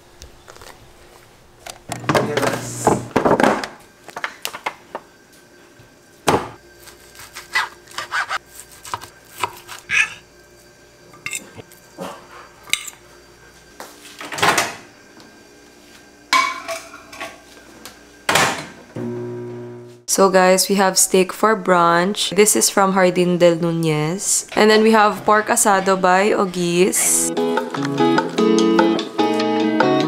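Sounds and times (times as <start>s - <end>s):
fork clinking on ceramic plate: 11.2s - 11.6s.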